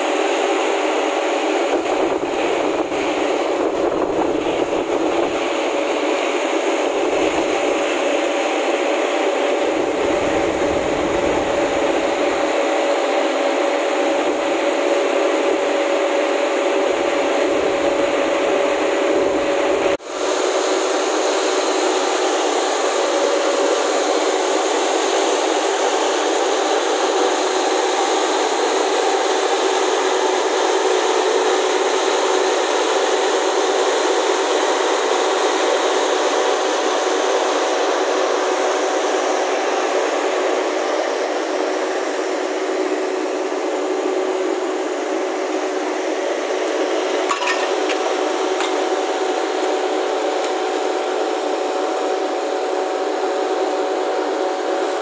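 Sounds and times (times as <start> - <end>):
fan rushing air: 0.0 - 55.0
faint hum: 1.7 - 14.6.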